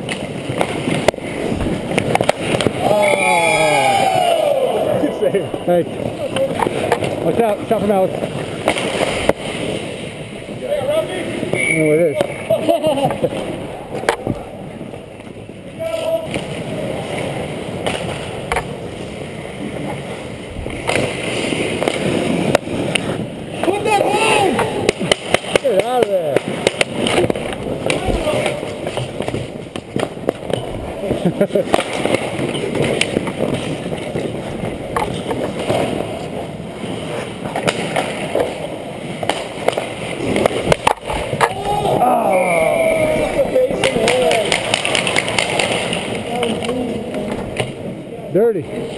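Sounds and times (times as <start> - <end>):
sharp clacks on ice: 0.0 - 2.9, 20.8 - 36.2, 36.8 - 42.0, 43.8 - 47.8
skates scraping on ice: 0.0 - 48.0
sharp clacks: 43.8 - 46.8.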